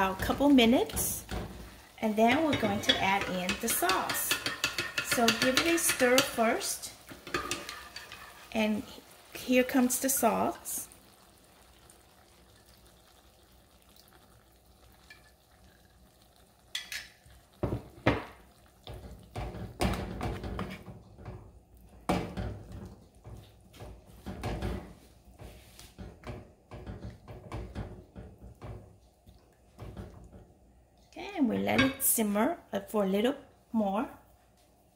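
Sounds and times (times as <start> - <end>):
wooden spatula scraping a pan: 1.0 - 8.9.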